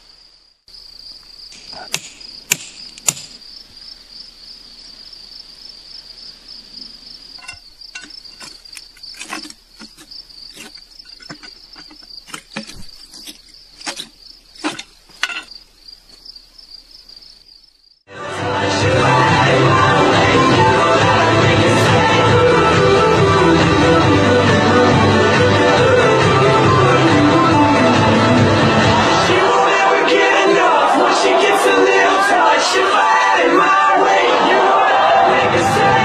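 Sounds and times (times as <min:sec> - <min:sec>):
insects chirring: 0:00.0 - 0:18.1.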